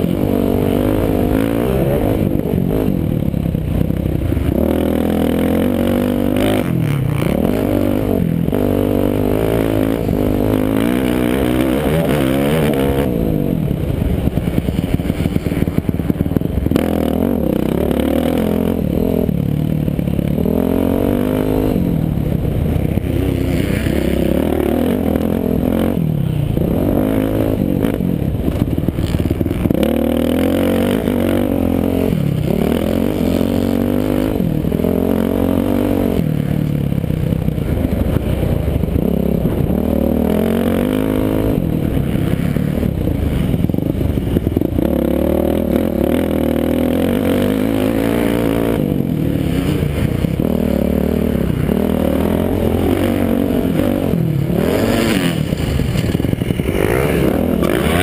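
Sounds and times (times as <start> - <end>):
motocross bike engine revving: 0.0 - 58.0
chassis rattling over bumps: 0.1 - 20.8, 41.2 - 58.0.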